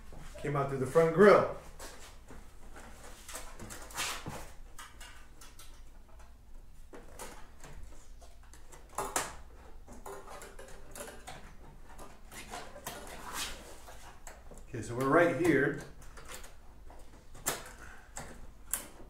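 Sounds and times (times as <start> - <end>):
hands rustling in plastic fairing: 11.8 - 15.4.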